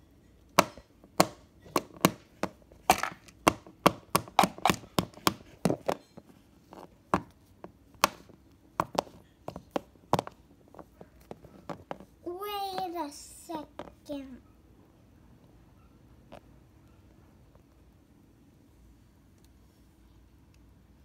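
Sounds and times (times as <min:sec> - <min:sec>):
toy figures tapping on wood: 0:00.6 - 0:06.1, 0:07.2 - 0:10.4.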